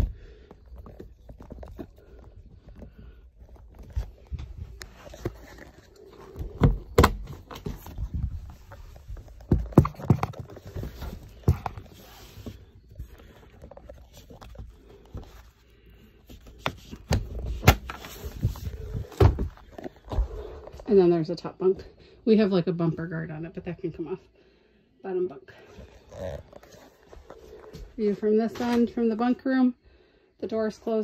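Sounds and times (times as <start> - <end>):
bunk bed thumps and knocks: 6.4 - 8.3, 17.1 - 20.5.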